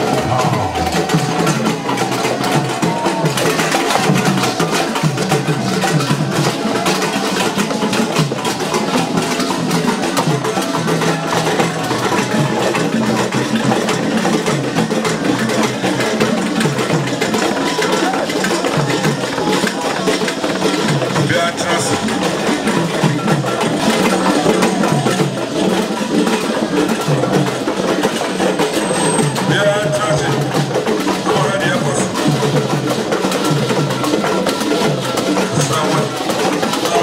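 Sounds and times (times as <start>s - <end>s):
clacking wood-block beat: 0.0s - 37.0s
dance music with drums: 0.0s - 37.0s.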